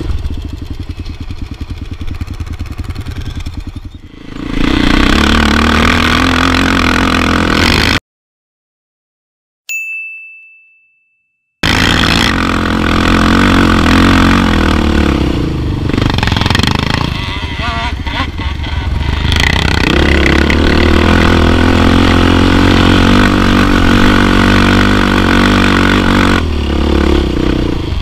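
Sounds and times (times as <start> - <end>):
quad engine idling and revving: 0.0 - 8.0, 11.6 - 28.0
ringing chime: 9.7 - 11.6.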